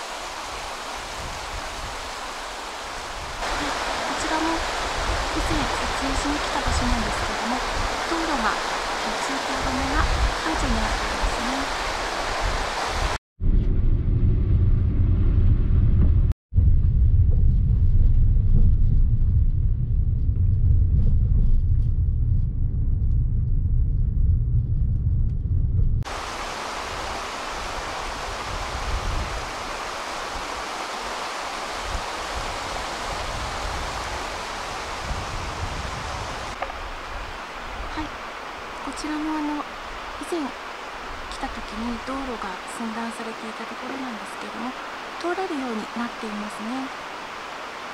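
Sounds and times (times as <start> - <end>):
stream rushing: 0.0 - 13.2, 26.1 - 47.9.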